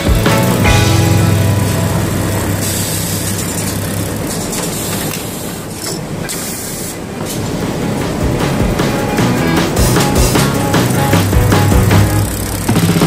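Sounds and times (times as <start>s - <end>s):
sewing machine running: 0.0s - 5.1s, 9.7s - 13.0s
compressed air hissing bursts: 0.0s - 5.6s.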